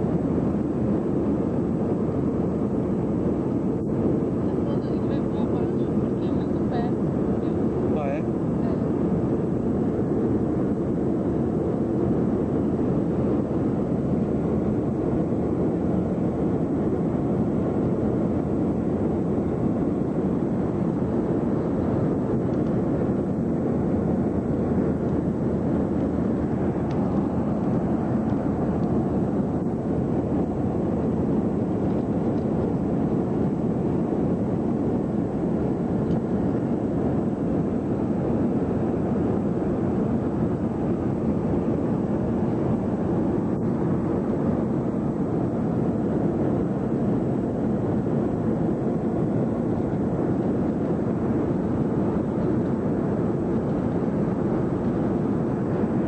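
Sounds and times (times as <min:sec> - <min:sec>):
airliner cabin engine rumble: 0:00.0 - 0:56.0.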